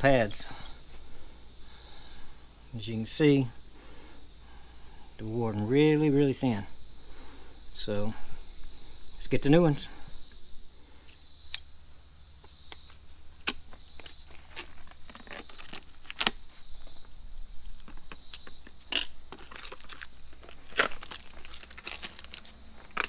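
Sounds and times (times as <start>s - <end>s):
plastic blister pack crinkling: 13.4s - 16.9s, 17.8s - 23.0s.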